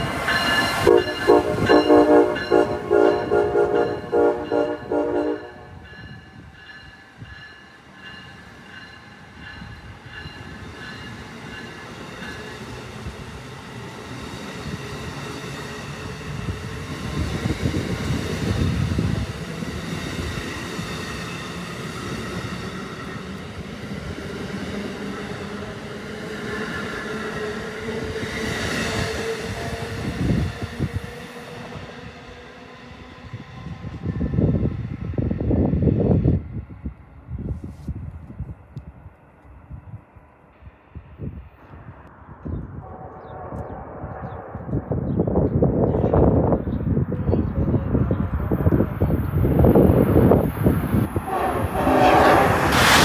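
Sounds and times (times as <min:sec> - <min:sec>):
train wheels on rails: 0:00.0 - 0:36.4, 0:42.4 - 0:53.0
train horn short blasts: 0:00.8 - 0:05.8, 0:42.8 - 0:44.6, 0:51.2 - 0:53.0.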